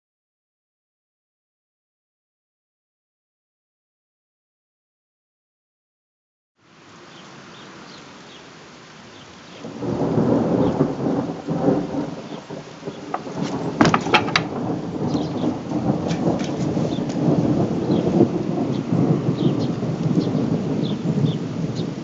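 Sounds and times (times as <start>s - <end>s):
rain hissing: 6.6s - 22.0s
thunder rumbling: 9.6s - 22.0s
raindrop ticks: 10.4s - 20.4s.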